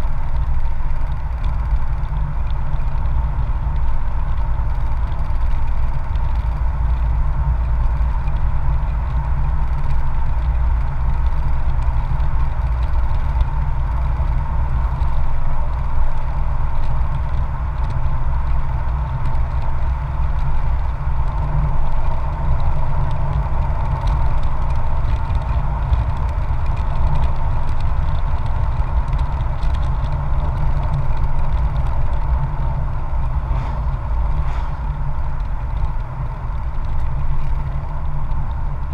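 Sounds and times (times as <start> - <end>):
wind on microphone: 18.8 - 38.9.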